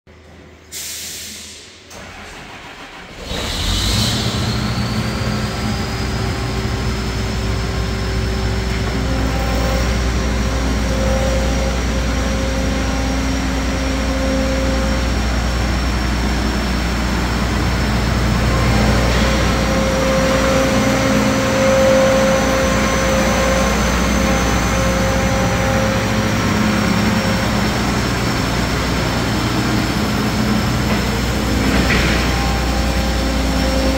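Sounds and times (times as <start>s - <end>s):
diesel engine starting and running: 0.2s - 33.9s
high turbo whistle: 17.8s - 30.6s.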